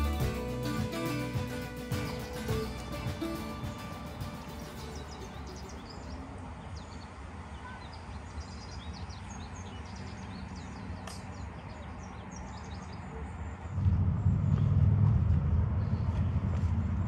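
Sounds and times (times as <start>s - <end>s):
songbirds chirping: 0.0s - 13.8s
low rumble: 13.7s - 17.0s.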